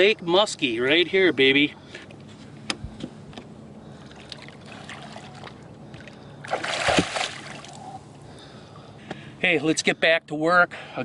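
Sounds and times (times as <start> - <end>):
fish splashing in water: 4.2 - 8.0.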